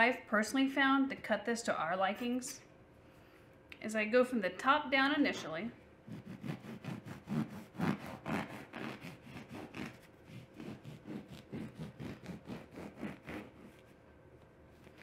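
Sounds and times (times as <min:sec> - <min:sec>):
knife sawing through bread: 0:06.1 - 0:13.9.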